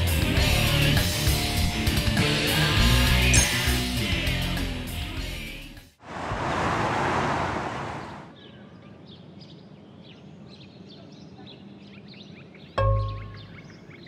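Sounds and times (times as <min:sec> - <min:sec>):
loud rushing noise: 0:06.0 - 0:08.3
small birds chirping: 0:07.8 - 0:14.0.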